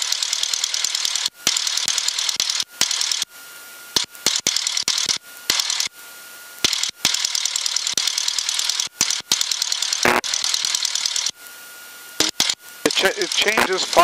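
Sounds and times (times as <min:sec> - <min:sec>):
crackling radio static: 0:10.0 - 0:11.5, 0:12.1 - 0:14.0.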